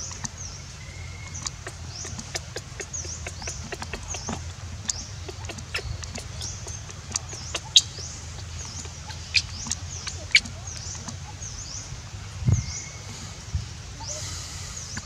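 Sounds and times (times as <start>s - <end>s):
low steady rumble: 0.0s - 15.0s
high-pitched chirping calls: 1.1s - 11.6s.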